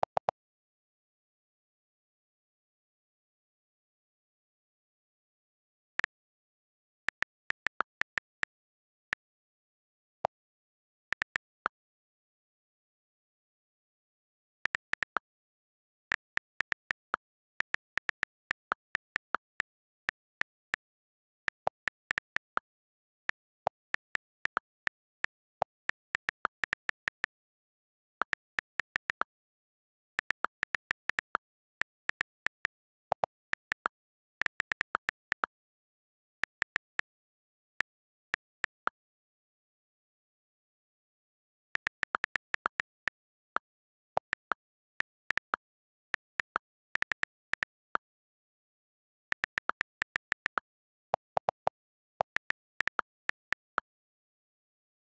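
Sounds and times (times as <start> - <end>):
on-screen keyboard clicks: 6.9 - 9.4, 11.1 - 11.6, 14.1 - 37.1, 37.8 - 39.0, 41.7 - 48.2, 49.3 - 53.9
on-screen keyboard key clicks: 15.6 - 27.5.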